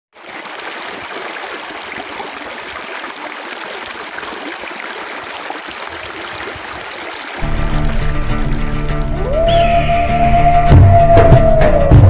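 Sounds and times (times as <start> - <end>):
stream rushing over rocks: 0.2 - 8.8.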